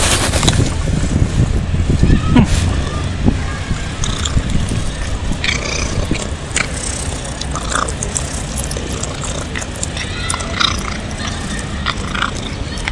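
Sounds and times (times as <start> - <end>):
low background rumble: 0.0 - 12.9
cat chewing and biting: 5.4 - 12.9.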